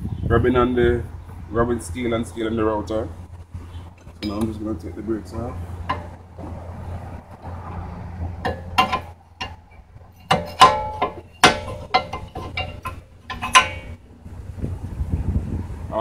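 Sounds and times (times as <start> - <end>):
steel bar clinking on brake parts: 8.4 - 14.0.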